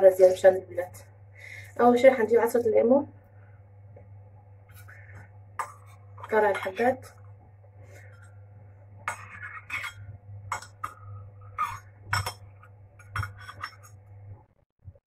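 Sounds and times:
steady low hum: 0:00.0 - 0:15.0
teaspoon clinking against ceramic bowl: 0:05.6 - 0:07.0, 0:11.6 - 0:14.0.

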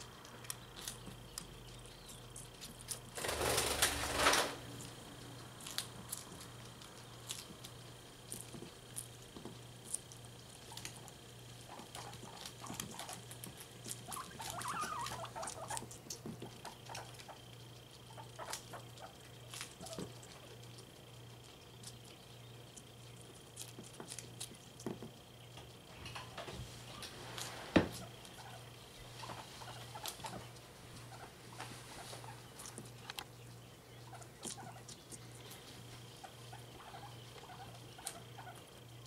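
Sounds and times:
guinea pigs chewing: 0:00.0 - 0:39.0
rustling: 0:26.1 - 0:33.3.

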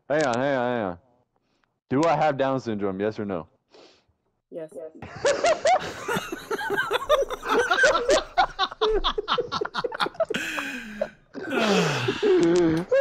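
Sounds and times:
young man laughing hard: 0:05.1 - 0:13.0.

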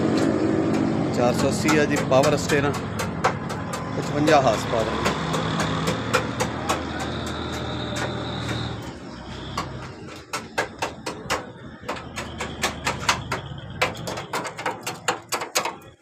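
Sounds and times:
engine running: 0:00.0 - 0:15.2
sharp clicks and knocks: 0:00.0 - 0:16.0.

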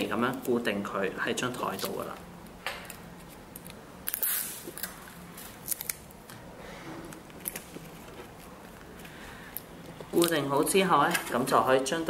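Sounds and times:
adhesive tape pulled off roll: 0:04.1 - 0:06.1.

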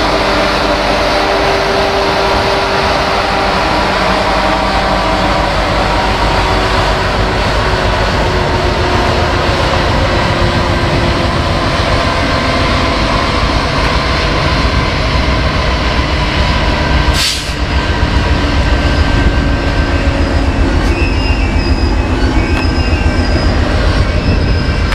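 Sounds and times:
diesel locomotives passing: 0:00.0 - 0:24.9
high wheel squeals: 0:19.8 - 0:24.9.

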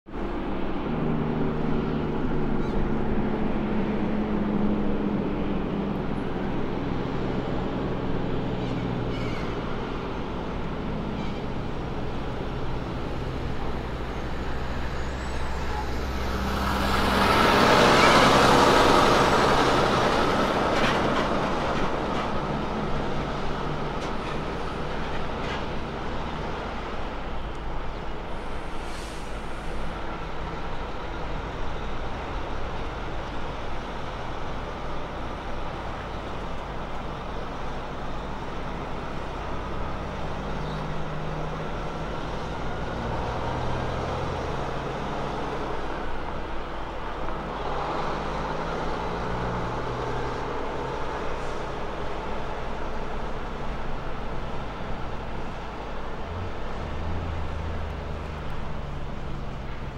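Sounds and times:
diesel truck engine: 0:00.1 - 0:59.9
air brake hiss: 0:28.4 - 0:30.0.

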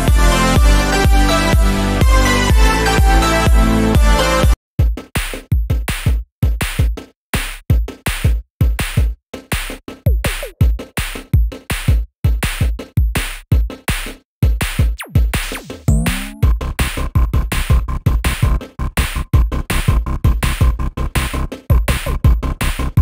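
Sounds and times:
electronic music with drum-machine beat: 0:00.0 - 0:23.0
pitched sweep: 0:15.9 - 0:16.5.

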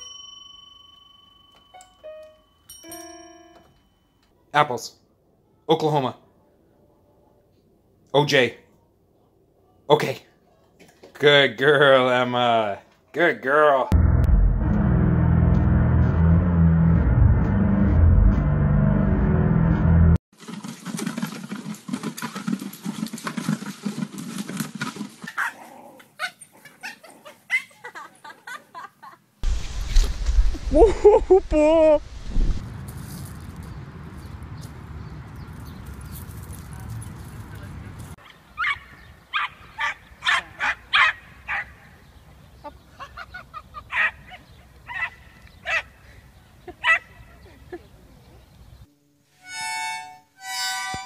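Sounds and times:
small dogs yapping: 0:25.2 - 0:27.9, 0:38.6 - 0:41.8, 0:43.8 - 0:45.9, 0:46.8 - 0:47.2.

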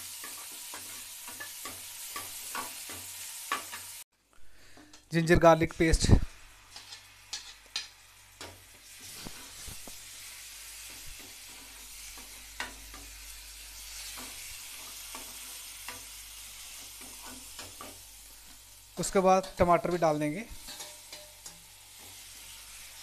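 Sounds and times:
onions sizzling in oil: 0:00.0 - 0:23.0
metal ladle scraping pan: 0:06.7 - 0:09.7, 0:20.6 - 0:22.1.

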